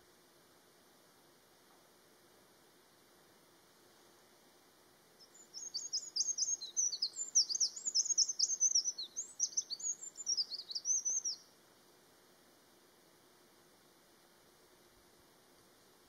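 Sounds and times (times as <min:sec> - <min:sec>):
wren singing high trills: 0:05.2 - 0:11.5.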